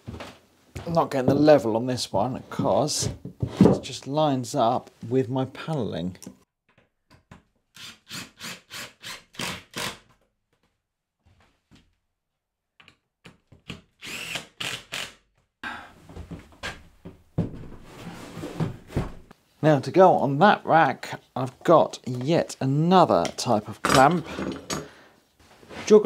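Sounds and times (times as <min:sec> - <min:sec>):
impact driver driving screws: 0:14.0 - 0:15.2.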